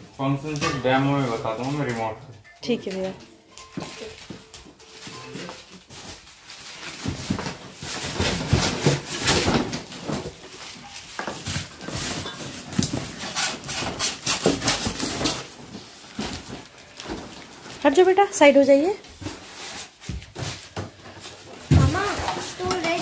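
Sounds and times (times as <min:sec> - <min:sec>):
plastic wrap rustling: 0:00.0 - 0:23.0
styrofoam squeaking: 0:04.0 - 0:18.0.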